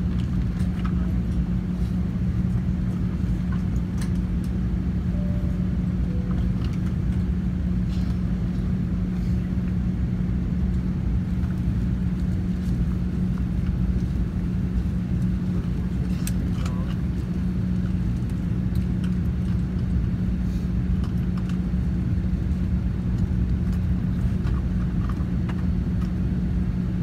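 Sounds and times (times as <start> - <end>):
airliner cabin drone: 0.0 - 27.0.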